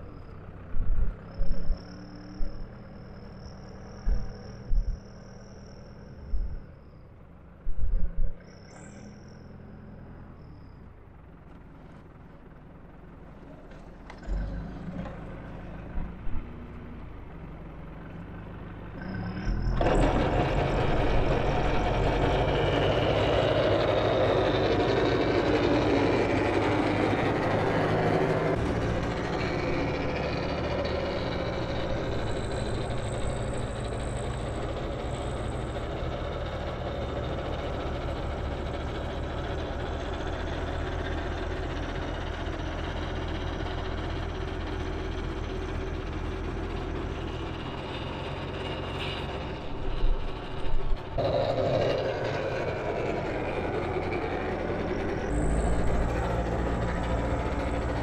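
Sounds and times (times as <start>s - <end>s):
tractor diesel engine idling: 9.1s - 58.0s
snowblower rushing: 19.7s - 43.3s, 47.4s - 58.0s.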